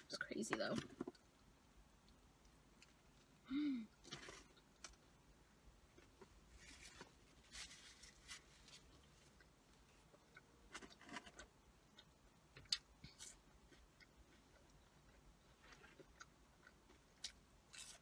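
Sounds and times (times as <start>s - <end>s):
soft chewing: 5.8s - 18.0s.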